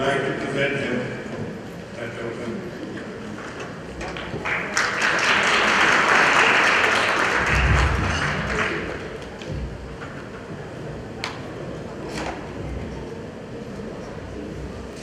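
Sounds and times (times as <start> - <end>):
audience applauding: 4.0 - 9.4.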